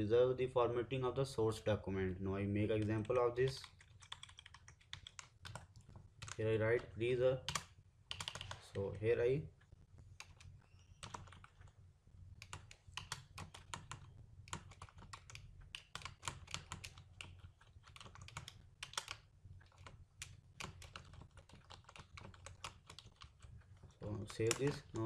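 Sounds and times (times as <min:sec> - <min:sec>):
keyboard typing: 0:02.7 - 0:06.9, 0:07.5 - 0:08.7, 0:10.2 - 0:11.8, 0:12.4 - 0:25.0.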